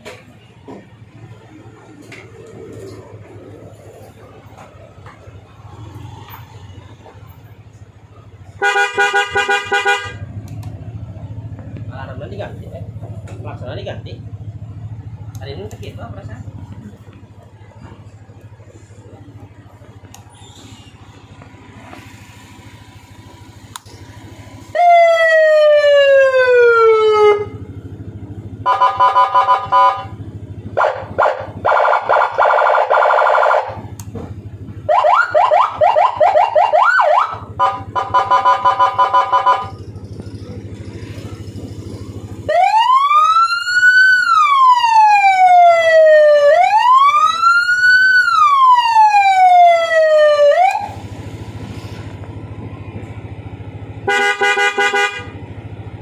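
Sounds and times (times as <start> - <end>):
motorcycle siren: 16.2 - 56.0.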